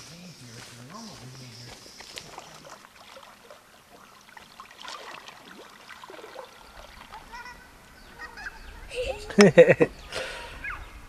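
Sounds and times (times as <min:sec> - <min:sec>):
river water splashing: 0:00.0 - 0:08.6
faint pitched calls: 0:05.6 - 0:09.2, 0:10.0 - 0:11.0.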